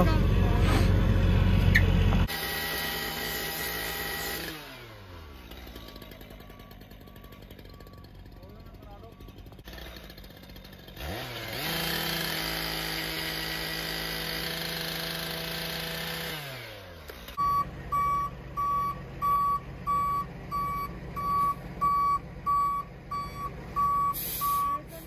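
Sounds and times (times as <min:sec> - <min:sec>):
gas-powered saw running: 0:02.2 - 0:17.4
reversing alarm beeping: 0:05.7 - 0:09.5, 0:17.4 - 0:24.9.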